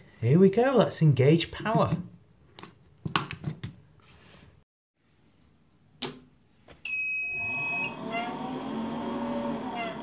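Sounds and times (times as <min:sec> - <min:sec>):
inverter running noise: 0:07.3 - 0:10.0.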